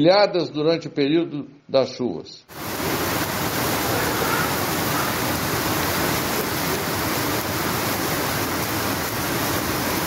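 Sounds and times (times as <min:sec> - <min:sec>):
floodwater rushing: 0:02.5 - 0:10.0.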